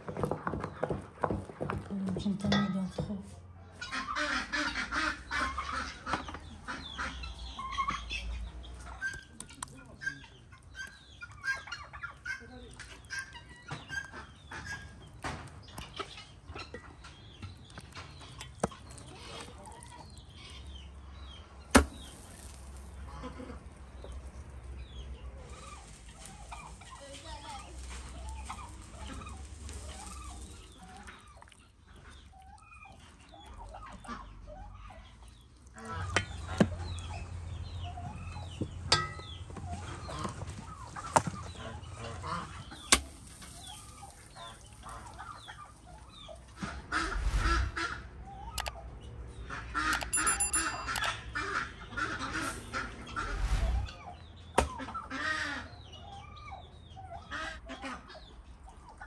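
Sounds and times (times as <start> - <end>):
chickens clucking: 2.4 - 59.0
raw chicken slapping on clay: 21.7 - 22.9.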